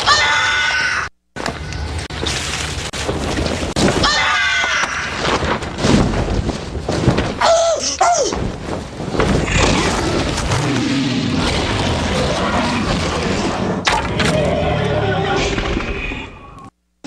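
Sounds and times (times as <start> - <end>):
low rumbling growl: 9.2 - 16.7.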